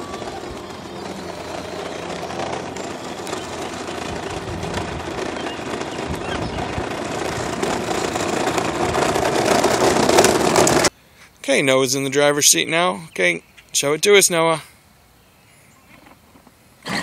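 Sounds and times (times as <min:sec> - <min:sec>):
electric motors whirring: 0:00.0 - 0:10.9
plastic wheels rumbling on asphalt: 0:00.0 - 0:10.9.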